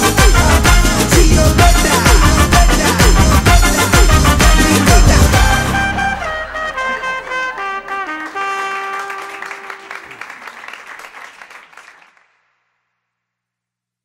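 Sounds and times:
soundtrack music: 0:00.0 - 0:09.8.

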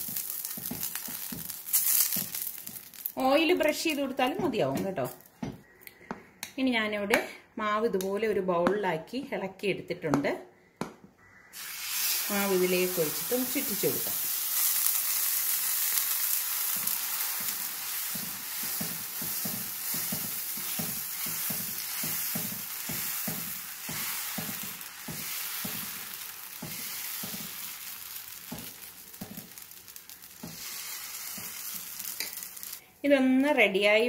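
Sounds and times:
batter sizzling on hot pan: 0:00.0 - 0:03.4, 0:11.6 - 0:32.8.

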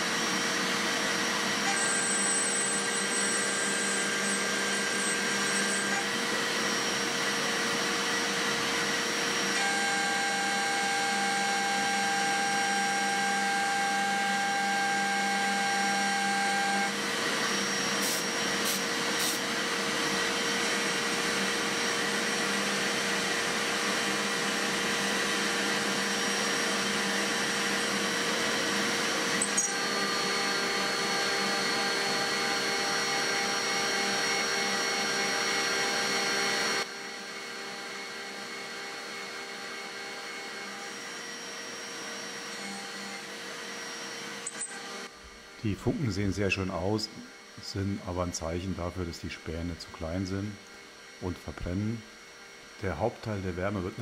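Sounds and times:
milling spindle whine: 0:00.0 - 0:54.0
metal cutting hiss: 0:18.0 - 0:19.5.

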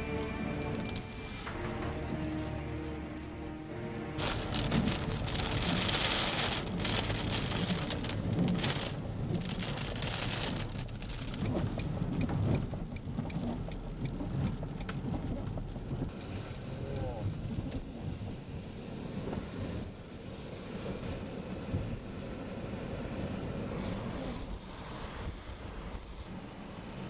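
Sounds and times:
thunder rumbling: 0:00.0 - 0:16.0
rain pouring: 0:00.0 - 0:21.6.

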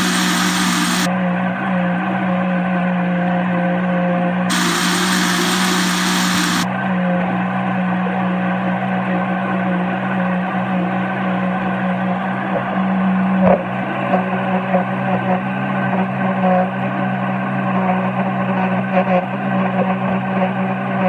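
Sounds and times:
electric blender motor humming: 0:00.0 - 0:01.1, 0:04.5 - 0:06.7.

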